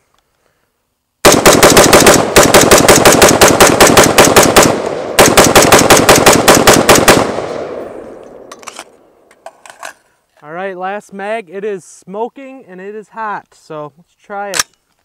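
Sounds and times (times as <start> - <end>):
rifle shots: 1.2 - 8.2
gunshot echo: 1.2 - 8.5.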